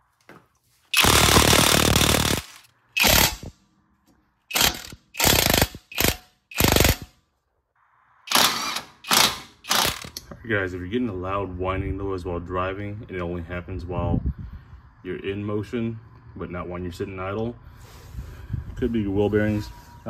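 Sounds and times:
impact wrench hammering bolts: 0:04.5 - 0:07.1, 0:08.3 - 0:10.3.

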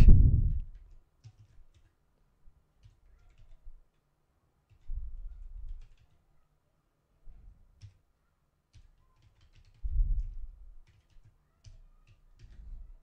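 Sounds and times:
keyboard typing: 0:00.5 - 0:02.0, 0:02.8 - 0:04.0, 0:04.7 - 0:06.2, 0:07.7 - 0:08.0, 0:08.7 - 0:12.9.

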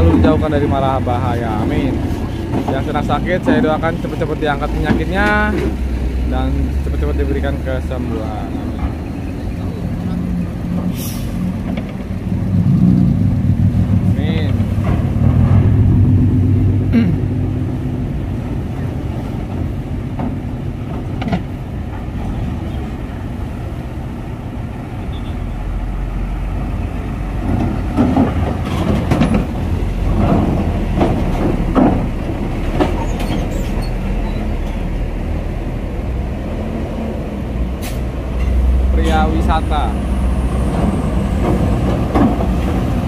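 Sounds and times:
metal knocks and clanks: 0:00.0 - 0:05.8, 0:11.6 - 0:16.2, 0:27.4 - 0:34.1
truck diesel engines rumbling: 0:00.0 - 0:43.0.

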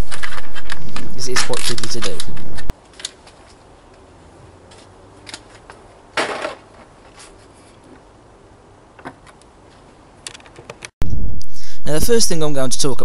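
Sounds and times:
scratchy packaging rustle: 0:00.0 - 0:03.6.

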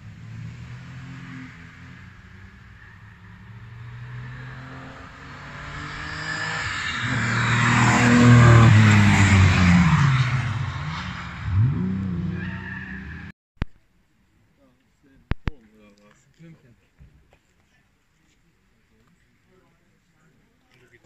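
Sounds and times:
race car engine passing by: 0:00.0 - 0:13.0.

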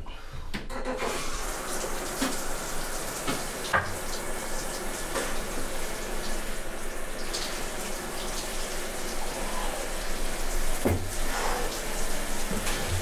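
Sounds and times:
tap water running into sink: 0:01.0 - 0:13.0
knocks and splashes: 0:03.2 - 0:04.1, 0:10.8 - 0:11.2.

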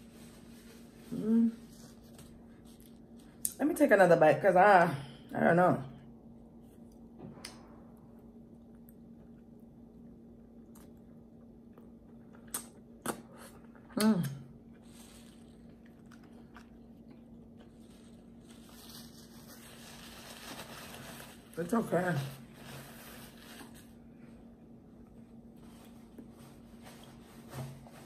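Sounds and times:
wet mouth clicks: 0:12.4 - 0:14.4
chewing food: 0:14.7 - 0:18.6
paper wrapper rustling: 0:17.7 - 0:23.9.

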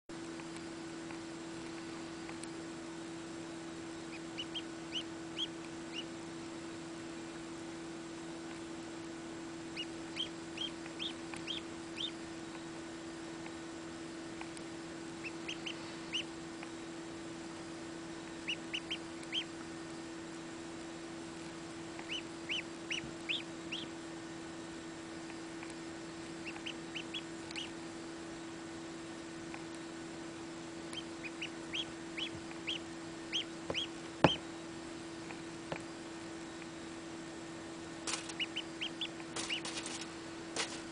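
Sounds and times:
steady low hum: 0:00.1 - 0:40.9
duckling peeping: 0:03.6 - 0:06.7, 0:09.6 - 0:13.6, 0:14.3 - 0:16.8, 0:18.1 - 0:19.8, 0:21.2 - 0:24.1, 0:25.2 - 0:27.9, 0:29.1 - 0:34.6, 0:38.1 - 0:40.1.

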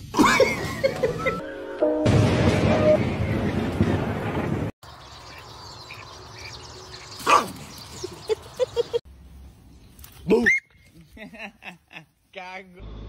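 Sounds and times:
dogs barking and yipping: 0:05.9 - 0:09.0.

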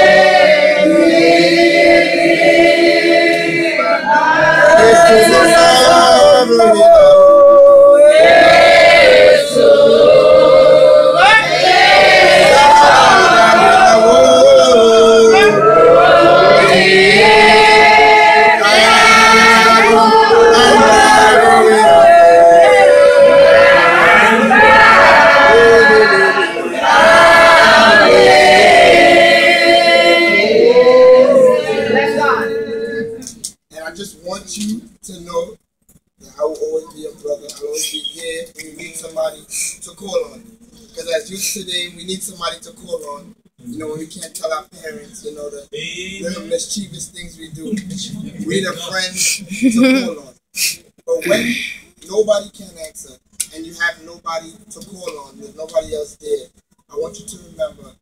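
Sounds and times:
other voices singing: 0:00.0 - 0:33.4
man singing a slow hymn: 0:04.7 - 0:08.1.

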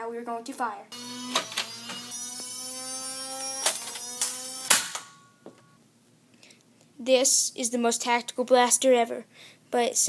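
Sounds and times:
motors whirring with rising whine: 0:01.0 - 0:05.4
loud sharp snap: 0:03.6 - 0:05.2.

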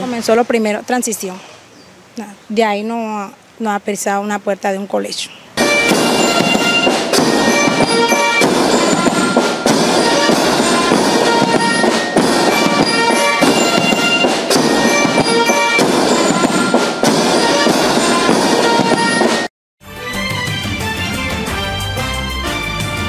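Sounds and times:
background music with steady beat: 0:05.6 - 0:23.0.

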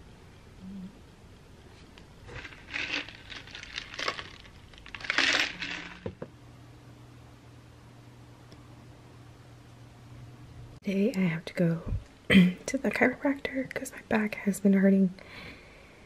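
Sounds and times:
rustling crinkling: 0:01.6 - 0:06.2.

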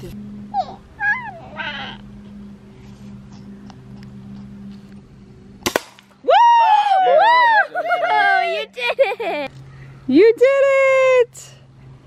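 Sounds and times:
steady low hum: 0:00.0 - 0:12.0
high animal call: 0:00.5 - 0:02.2.

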